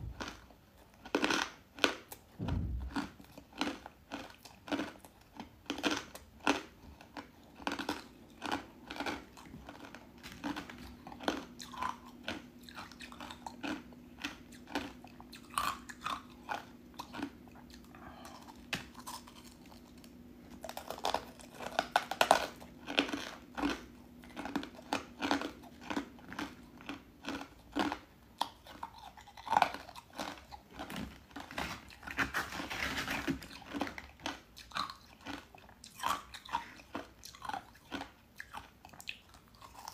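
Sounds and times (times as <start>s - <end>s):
ice crunching while chewed: 0.1s - 39.9s.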